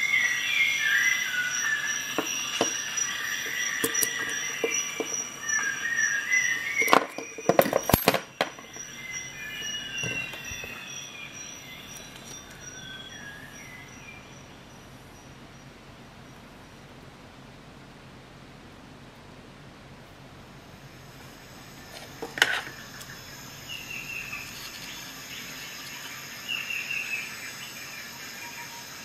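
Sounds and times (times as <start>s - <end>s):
sharp metal clicks: 3.4s - 5.4s
jigsaw blade squeaking and scraping: 3.4s - 5.5s, 6.7s - 8.9s.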